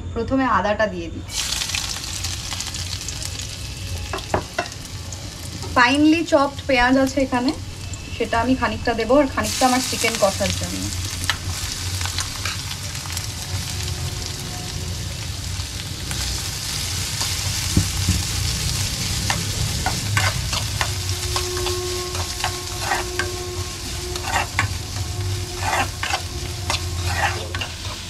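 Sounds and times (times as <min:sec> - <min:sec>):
onion sizzling in hot oil: 0:01.3 - 0:28.0
spatula scraping pan: 0:18.9 - 0:28.0.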